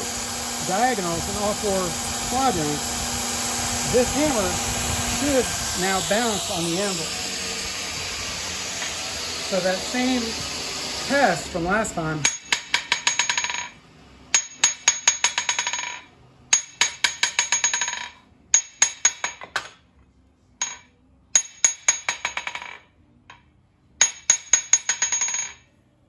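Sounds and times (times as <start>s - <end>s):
hammer tapping on anvil: 12.2s - 13.7s, 14.4s - 19.8s, 20.6s - 25.6s.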